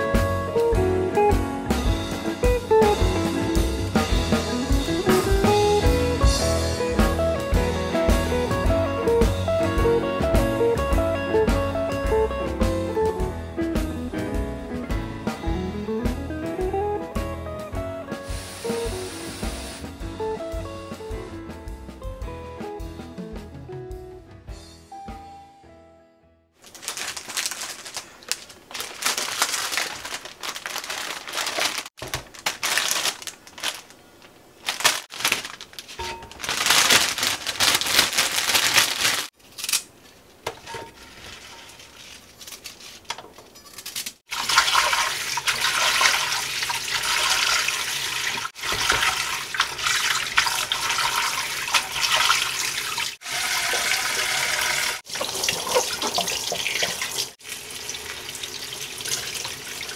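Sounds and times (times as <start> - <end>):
rustling of food containers: 26.6 - 44.1
tap water running into sink: 44.3 - 59.9.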